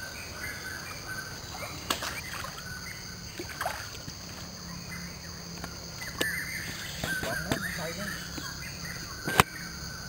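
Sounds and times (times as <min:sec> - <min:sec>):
high insect drone: 0:00.0 - 0:10.0
stream water rushing and splashing: 0:03.3 - 0:04.4.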